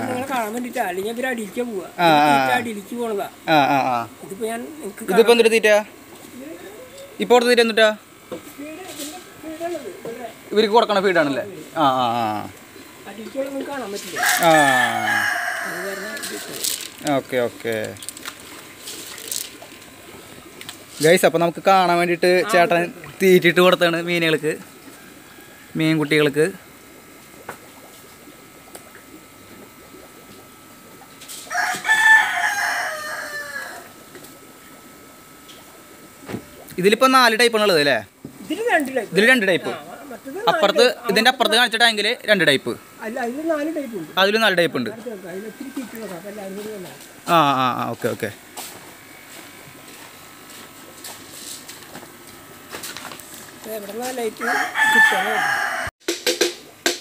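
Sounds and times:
rooster crowing: 14.1s - 16.9s, 31.5s - 34.0s, 54.4s - 56.0s.

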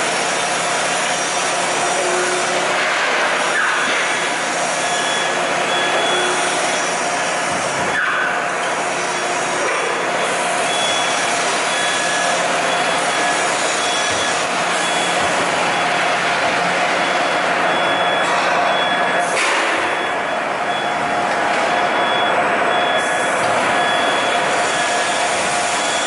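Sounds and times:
plasma cutter hiss and hum: 0.0s - 15.6s, 23.0s - 26.0s
high warning beep: 4.8s - 6.9s, 10.2s - 16.3s, 16.9s - 26.0s.

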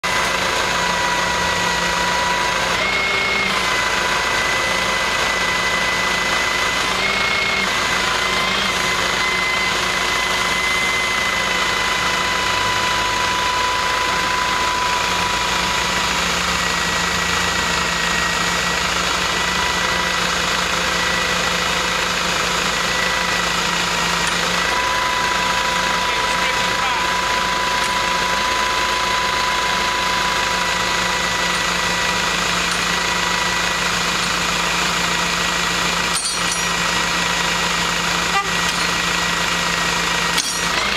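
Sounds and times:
high winch whine: 0.0s - 40.9s
tow truck engine running: 0.0s - 40.9s.

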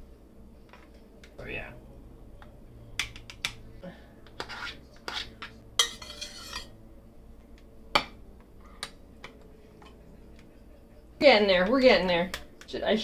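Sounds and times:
spoon scraping glass dish: 4.4s - 6.7s.

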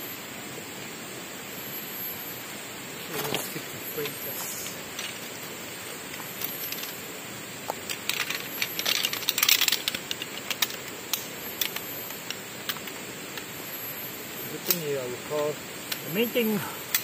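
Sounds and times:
metal chair frame clicking and clattering: 7.8s - 11.8s.

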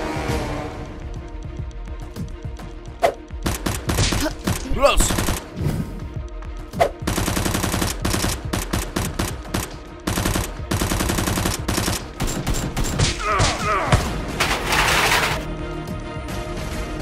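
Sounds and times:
rapid automatic gunfire: 7.1s - 13.0s.

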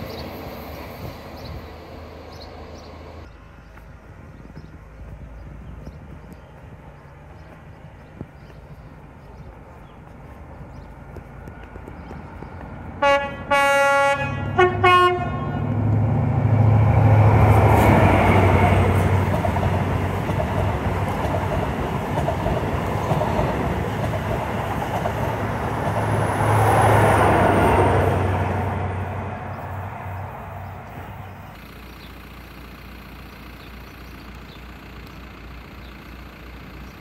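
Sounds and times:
train wheel and rail noise: 0.0s - 32.1s
two-tone train horn: 13.0s - 15.8s.

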